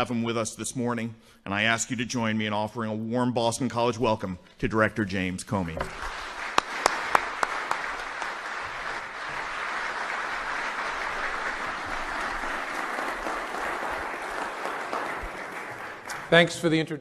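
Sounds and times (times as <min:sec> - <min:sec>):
audience applauding: 0:05.8 - 0:16.9.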